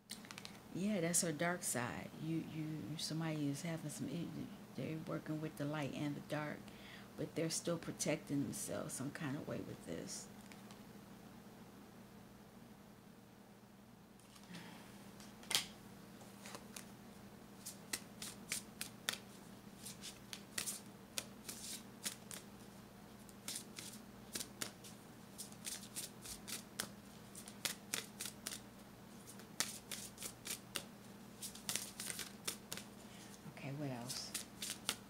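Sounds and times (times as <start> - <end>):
faint steady hum: 0.0 - 35.0
cards being shuffled: 0.1 - 0.6, 15.2 - 16.9, 17.6 - 22.5, 23.2 - 28.6, 29.2 - 33.4, 34.0 - 35.0.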